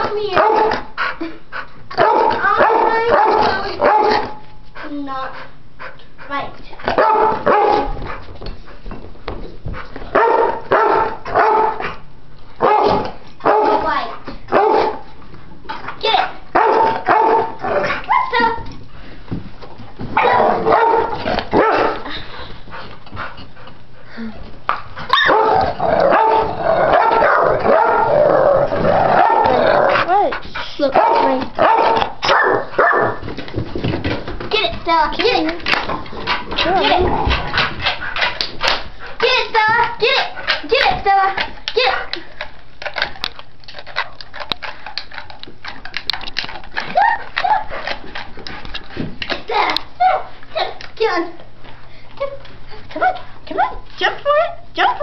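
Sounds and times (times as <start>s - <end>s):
dogs barking and yipping: 6.9s - 8.0s, 10.1s - 11.9s, 14.5s - 15.0s, 16.5s - 18.5s, 20.2s - 22.0s, 25.1s - 30.2s, 31.0s - 33.3s, 46.8s - 48.3s
dog high cry: 25.1s - 28.2s, 46.8s - 47.8s
dog chewing on a stick: 41.5s - 49.9s.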